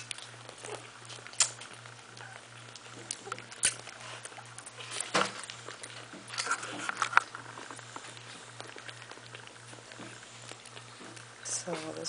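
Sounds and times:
wet smacking clicks: 0:00.0 - 0:04.8
steady low hum: 0:00.0 - 0:12.0.

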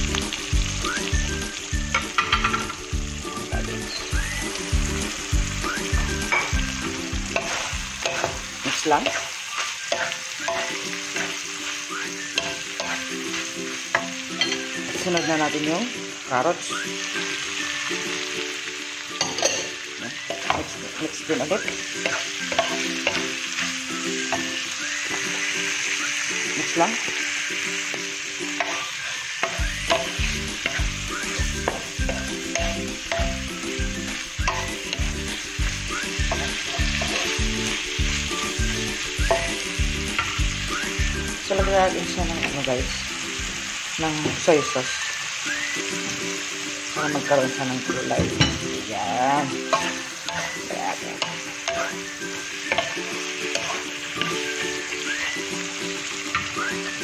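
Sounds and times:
quiet background music: 0:00.0 - 0:57.0
stir-fry sizzling in a wok: 0:00.0 - 0:57.0
spatula scraping and knocking pan: 0:01.9 - 0:02.9, 0:06.0 - 0:11.5, 0:28.6 - 0:33.5, 0:49.6 - 0:54.5.

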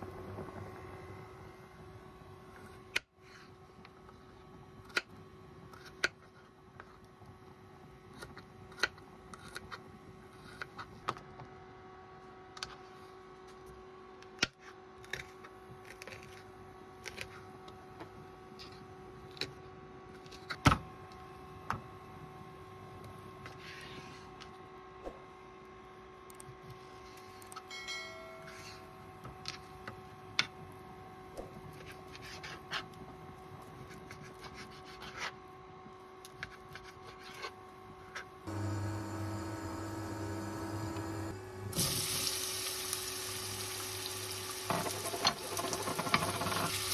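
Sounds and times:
steady hum: 0:20.9 - 0:46.9
water boiling in a pot: 0:41.7 - 0:46.9.

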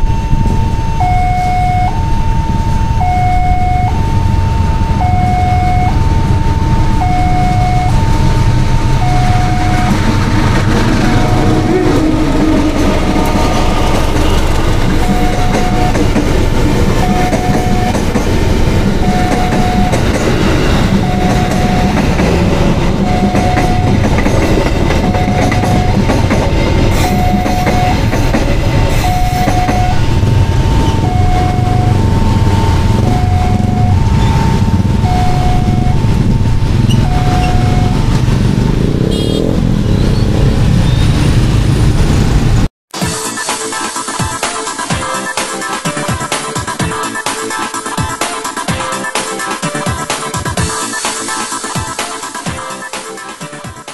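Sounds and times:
crossing bell two-tone signal: 0:00.0 - 0:10.3, 0:11.0 - 0:18.2, 0:19.0 - 0:22.2, 0:22.9 - 0:26.3, 0:26.9 - 0:28.3, 0:28.9 - 0:38.2
train rumble and wheel clatter: 0:00.0 - 0:42.7.

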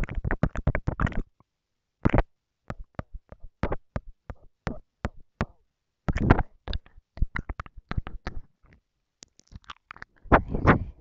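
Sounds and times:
wet mouth clicks and smacks: 0:06.1 - 0:10.3.

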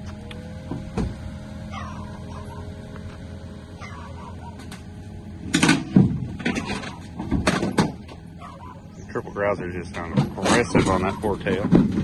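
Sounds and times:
low vehicle drone: 0:00.0 - 0:12.0
loud clunks and rattles: 0:00.6 - 0:01.3, 0:04.6 - 0:08.4, 0:09.8 - 0:12.0.

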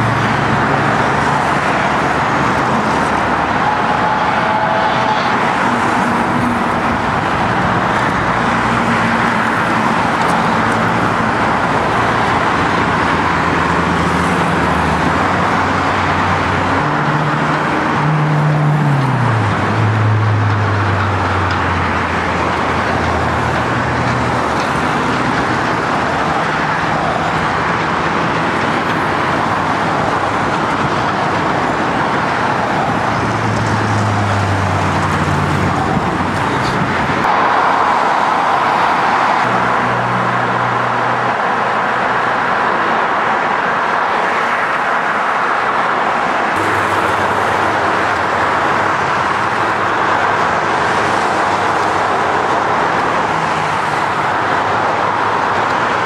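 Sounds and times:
cars passing: 0:00.0 - 0:56.0
low engine hums: 0:46.6 - 0:56.0.

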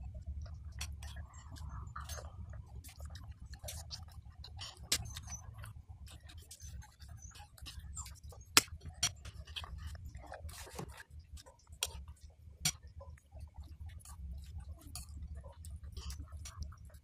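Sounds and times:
low steady hum: 0:00.0 - 0:17.0
soft wet chewing: 0:00.1 - 0:17.0.

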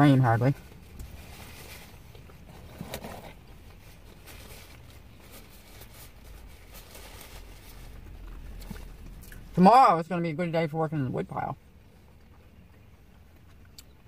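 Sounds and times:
low steady rumble: 0:00.0 - 0:14.0
food paper rustling: 0:01.1 - 0:09.0
chewing: 0:07.8 - 0:09.4, 0:12.1 - 0:14.0.

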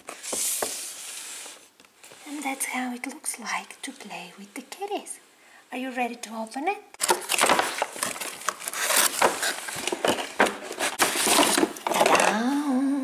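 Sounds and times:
cardboard box tearing and crinkling: 0:07.0 - 0:12.0.

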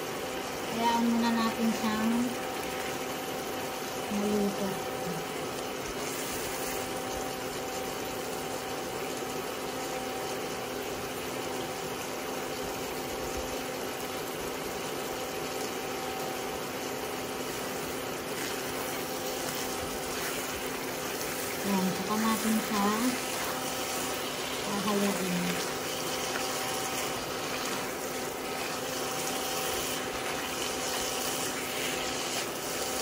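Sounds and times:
constant hum: 0:00.0 - 0:08.3, 0:16.0 - 0:33.0
food sizzling in a wok: 0:00.2 - 0:08.8, 0:14.7 - 0:33.0.

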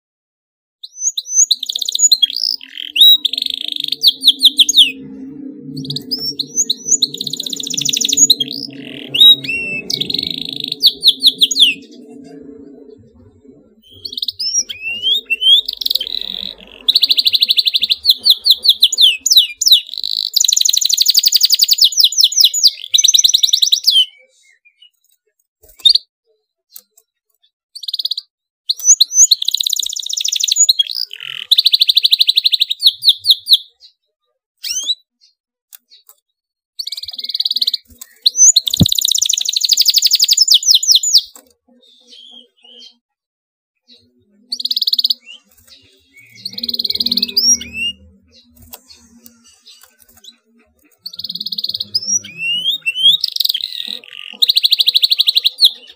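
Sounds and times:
canary singing trills: 0:00.8 - 0:25.0, 0:27.8 - 0:34.0, 0:34.6 - 0:36.1, 0:36.8 - 0:43.0, 0:43.8 - 0:55.9
faint low hum: 0:02.6 - 0:19.3.

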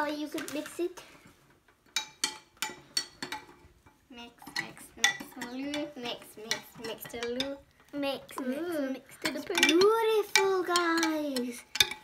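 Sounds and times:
metal spoon stirring in glass jug: 0:04.3 - 0:07.6, 0:09.2 - 0:12.0.

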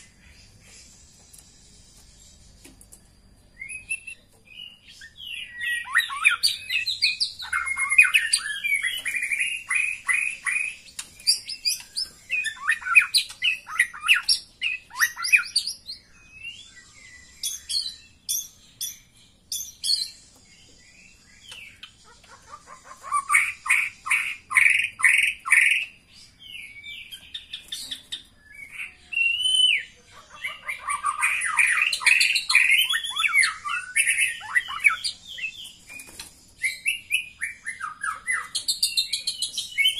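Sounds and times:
bird whistled notes: 0:03.6 - 0:20.2.

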